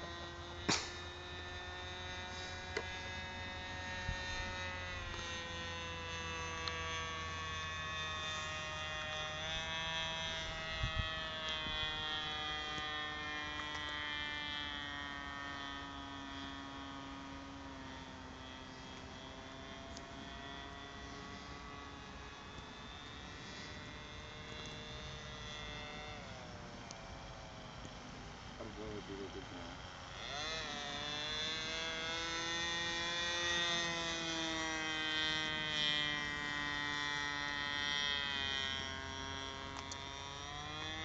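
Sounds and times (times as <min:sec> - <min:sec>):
model aeroplane motor droning: 0:00.0 - 0:41.0.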